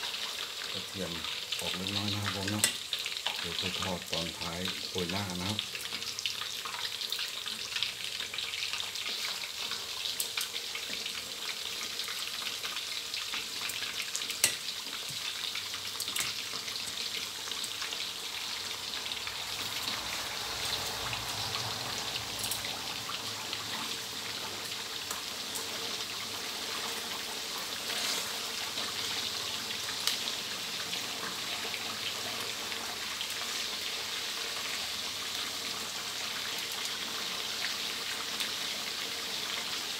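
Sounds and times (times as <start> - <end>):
fish deep-frying in oil: 0.0 - 39.9
oil crackling pops: 14.3 - 15.2.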